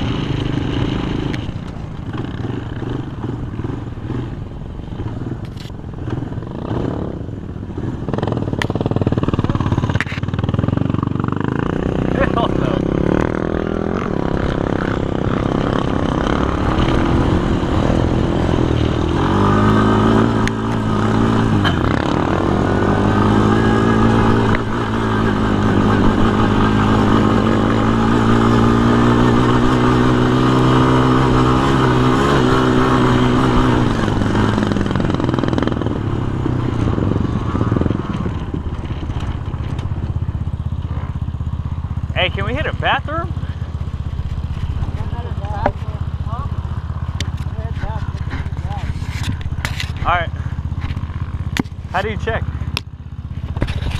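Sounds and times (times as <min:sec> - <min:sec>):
quad engine running: 0:00.0 - 0:53.9.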